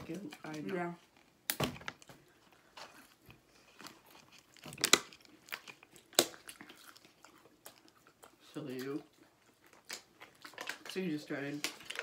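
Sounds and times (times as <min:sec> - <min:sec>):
crunching bites of food: 0:03.5 - 0:12.0.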